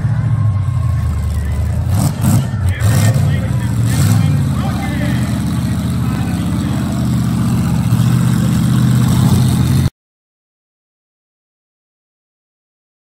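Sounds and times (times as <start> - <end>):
truck engine running at low revs: 0.0 - 9.9.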